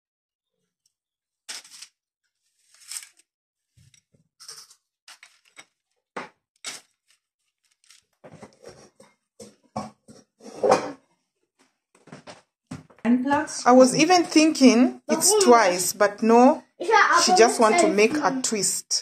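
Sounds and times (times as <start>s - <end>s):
kitchen clatter: 3.8s - 5.8s, 8.3s - 11.0s.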